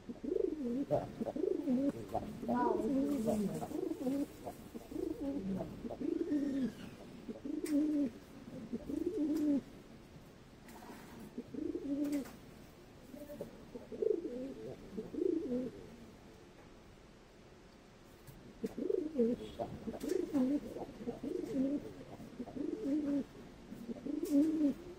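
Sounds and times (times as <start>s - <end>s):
pigeons cooing: 0.0s - 9.7s, 11.2s - 12.4s, 13.1s - 16.0s, 18.6s - 24.9s.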